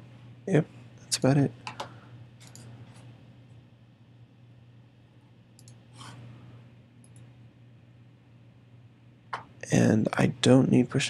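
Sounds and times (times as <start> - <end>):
steady low hum: 0.0 - 11.0
computer clicks: 1.6 - 2.7, 5.6 - 5.8.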